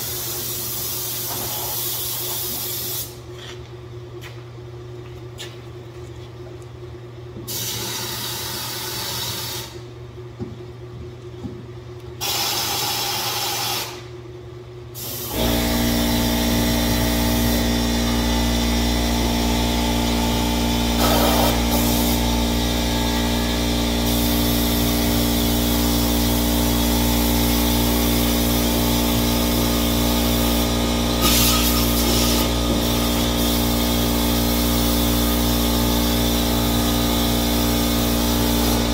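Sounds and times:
air spray gun hissing: 0:00.0 - 0:03.2, 0:07.5 - 0:09.8, 0:12.2 - 0:14.0, 0:15.0 - 0:15.6, 0:17.3 - 0:17.6, 0:21.0 - 0:22.3, 0:24.1 - 0:24.9, 0:27.2 - 0:35.5
air compressor motor running: 0:00.0 - 0:03.6, 0:07.4 - 0:10.0, 0:12.2 - 0:14.2, 0:14.9 - 0:38.9.

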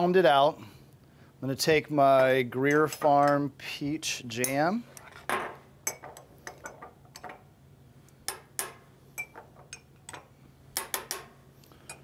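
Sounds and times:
spoon clinking against glass jar: 0:09.2 - 0:10.2.

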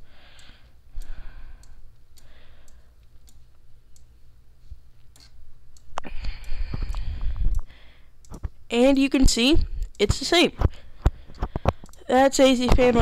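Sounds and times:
faint breathing: 0:00.0 - 0:03.0, 0:06.0 - 0:08.2
computer mouse clicking: 0:00.3 - 0:04.1, 0:05.0 - 0:08.6, 0:11.0 - 0:13.0.

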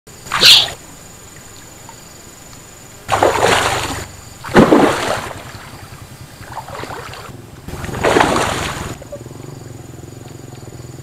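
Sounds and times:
fish splashing in water: 0:03.1 - 0:09.0.

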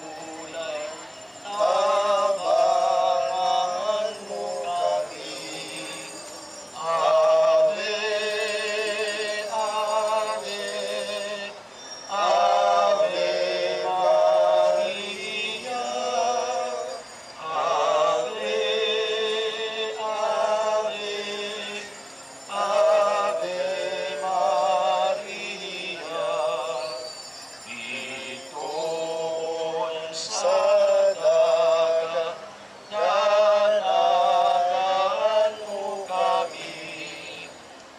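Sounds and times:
group singing a hymn: 0:00.0 - 0:37.7.

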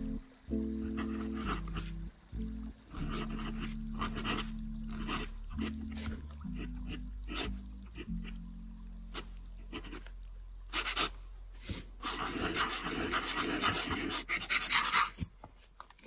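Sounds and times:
pen nib scratching paper: 0:00.9 - 0:01.9, 0:02.9 - 0:08.1, 0:09.1 - 0:10.1, 0:10.7 - 0:11.2, 0:12.0 - 0:15.2.

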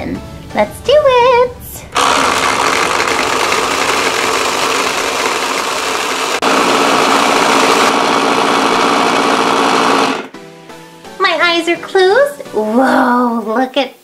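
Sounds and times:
toy blender motor whirring: 0:02.0 - 0:08.0.

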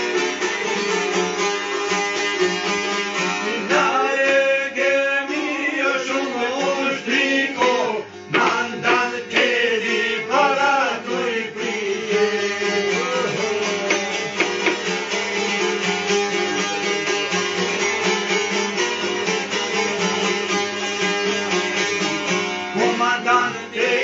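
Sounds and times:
plucked lutes playing folk music: 0:00.0 - 0:24.0
man singing: 0:03.4 - 0:14.7, 0:22.8 - 0:24.0.

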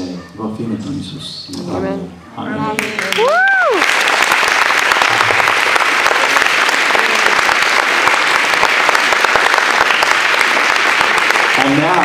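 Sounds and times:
crowd clapping: 0:02.7 - 0:12.0.

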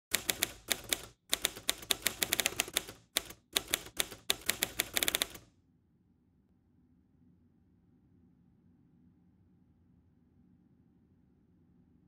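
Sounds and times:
typewriter keystrokes clacking: 0:00.0 - 0:05.5.

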